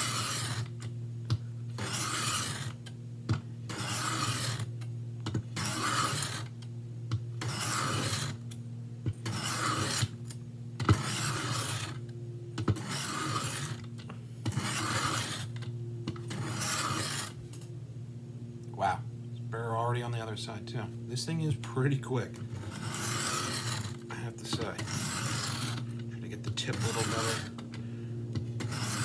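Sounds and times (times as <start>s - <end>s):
knife blade scraping on sharpening plate: 1.8s - 2.7s, 3.7s - 4.6s, 5.6s - 6.4s, 7.4s - 8.4s, 9.2s - 10.1s, 10.9s - 12.0s, 14.5s - 15.5s, 16.3s - 17.4s.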